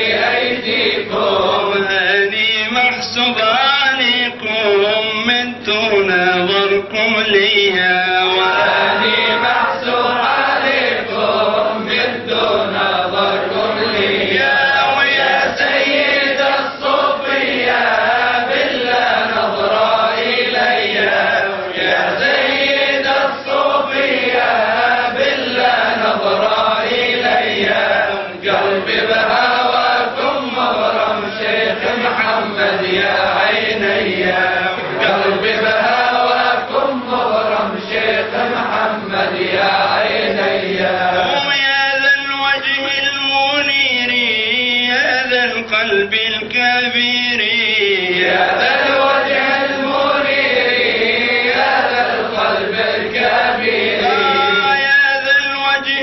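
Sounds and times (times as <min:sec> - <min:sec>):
man chanting: 0:01.3 - 0:10.3, 0:41.0 - 0:48.3, 0:54.0 - 0:56.0.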